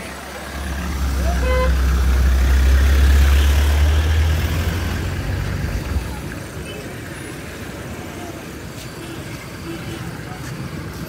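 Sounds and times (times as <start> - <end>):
vehicle driving past: 0.2 - 6.0.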